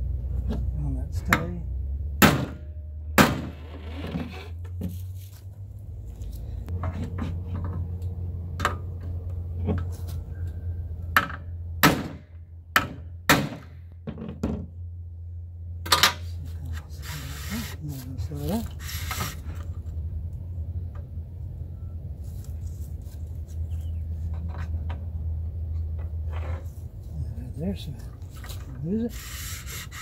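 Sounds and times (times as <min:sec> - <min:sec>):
steady low hum: 0:00.0 - 0:30.0
tools knocking and thunking: 0:12.8 - 0:14.7.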